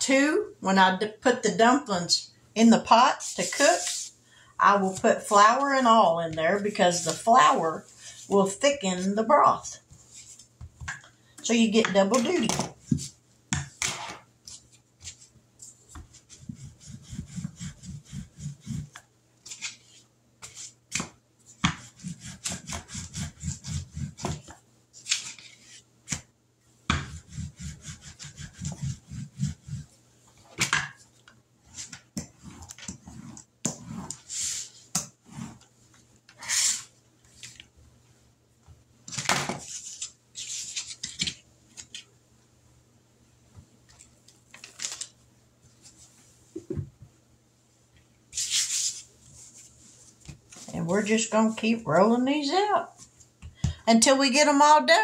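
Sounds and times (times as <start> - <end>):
hands tapping and scraping dough: 20.4 - 24.6.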